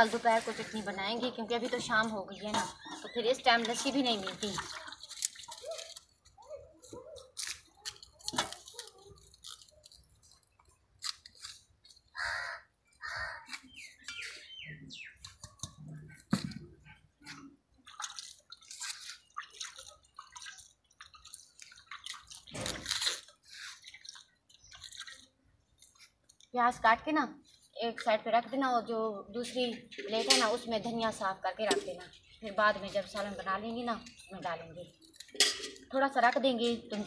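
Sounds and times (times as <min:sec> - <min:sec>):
bird chirps: 0:02.6 - 0:03.9, 0:12.2 - 0:15.9.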